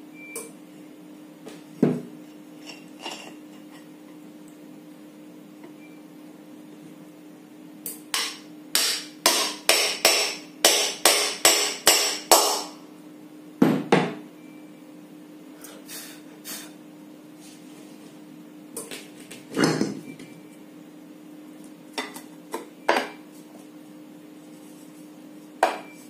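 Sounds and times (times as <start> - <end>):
hammer tapping metal: 8.1 - 12.8.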